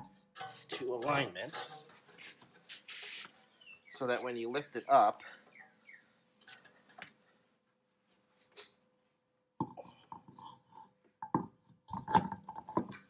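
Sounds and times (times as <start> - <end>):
metal scraping: 0.0 - 3.2
wheel knocks and clunks: 11.3 - 13.0.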